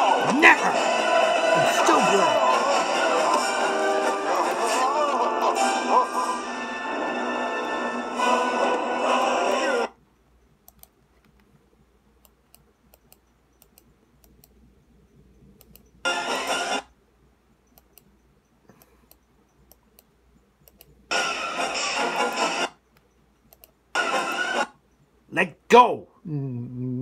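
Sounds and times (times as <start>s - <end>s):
cartoon soundtrack from laptop speakers: 0.0s - 10.0s, 16.1s - 17.0s, 21.1s - 23.0s, 23.9s - 24.8s
laptop keys and mouse clicks: 10.6s - 11.5s, 12.2s - 14.6s, 15.4s - 15.9s, 18.7s - 21.0s, 22.9s - 23.8s.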